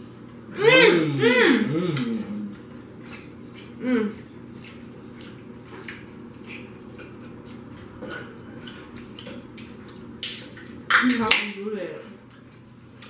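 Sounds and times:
low room hum: 0.0 - 13.0
people chewing crunchy food: 1.7 - 10.9, 12.2 - 13.0.

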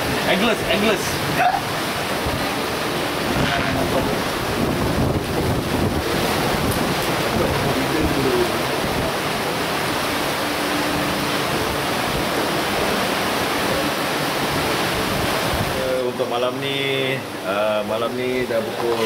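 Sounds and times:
strong wind rushing: 0.0 - 15.8
wind buffeting the microphone: 0.0 - 16.0
rough sea waves: 0.0 - 19.0.

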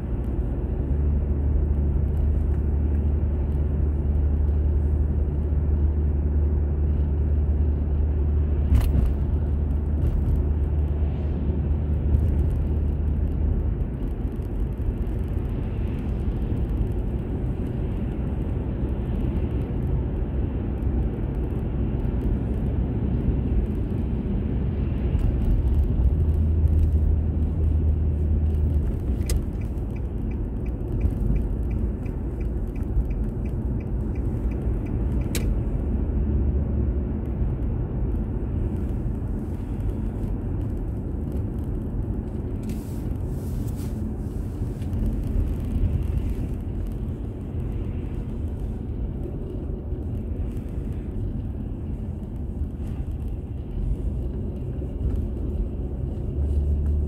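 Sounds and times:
car engine and tyre drone: 0.0 - 57.0
light even ticks: 28.5 - 35.6
sharp clicks: 29.0 - 35.6.

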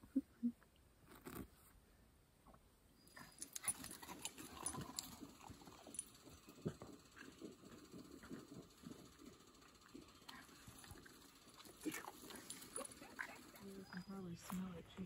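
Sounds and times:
faint dog sounds: 3.1 - 14.9
dog paws clicking on dirt: 3.2 - 15.0.

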